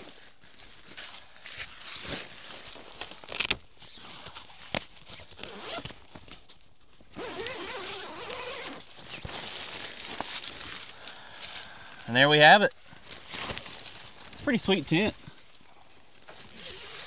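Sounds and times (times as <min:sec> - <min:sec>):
footsteps in dry leaves: 0:00.0 - 0:03.7, 0:08.1 - 0:12.1, 0:12.8 - 0:17.0
tent zipper pulled open: 0:03.2 - 0:04.5, 0:05.1 - 0:06.0, 0:07.1 - 0:10.0, 0:16.4 - 0:17.0.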